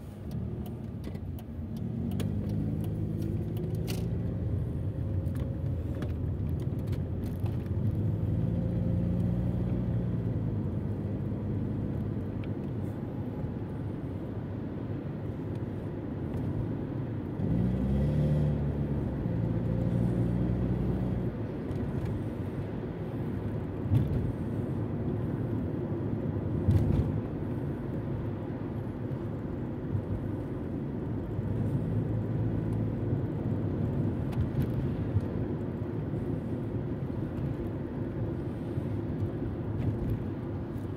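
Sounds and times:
road rumble: 0:00.0 - 0:40.9
car engine accelerating: 0:00.2 - 0:12.2.

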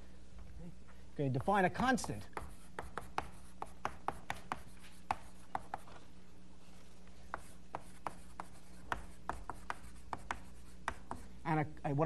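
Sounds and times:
chalk writing on blackboard: 0:01.4 - 0:06.0, 0:07.1 - 0:11.3.

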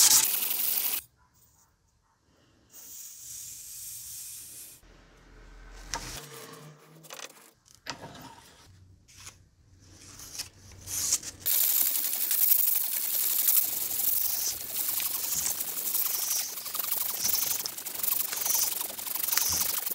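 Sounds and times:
sandpaper rubbing on steel blade: 0:00.0 - 0:01.0, 0:10.8 - 0:19.9
sandpaper sheets rustling: 0:10.0 - 0:19.9.

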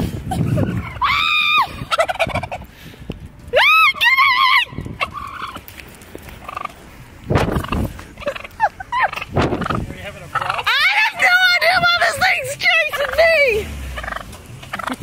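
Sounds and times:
turkey gobbling: 0:00.5 - 0:02.7, 0:04.9 - 0:05.6, 0:06.4 - 0:06.8, 0:07.4 - 0:15.0.

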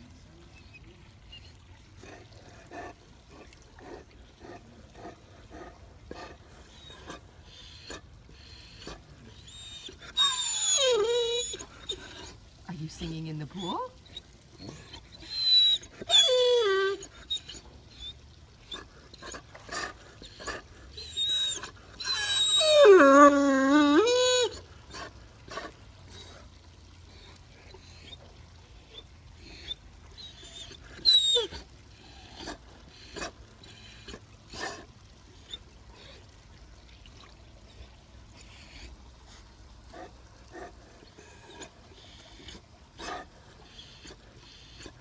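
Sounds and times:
dog whining: 0:08.8 - 0:12.4, 0:14.6 - 0:18.2, 0:20.2 - 0:25.1, 0:29.4 - 0:34.8
dog moaning howl: 0:09.5 - 0:12.0, 0:15.3 - 0:17.5, 0:21.0 - 0:24.6.

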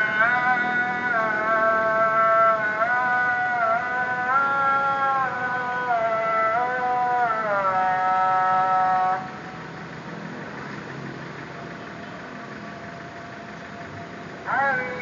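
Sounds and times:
call to prayer over loudspeaker: 0:00.0 - 0:09.8, 0:13.0 - 0:15.0
idling car traffic hum: 0:00.0 - 0:15.0.

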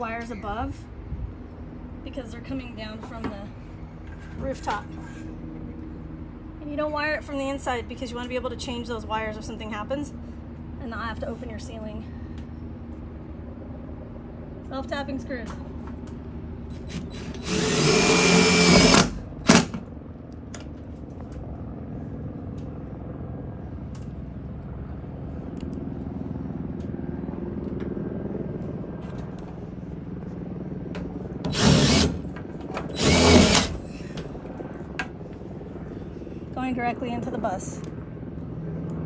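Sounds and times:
cordless drill driving screws: 0:16.8 - 0:19.7, 0:31.5 - 0:32.2, 0:32.9 - 0:33.8.

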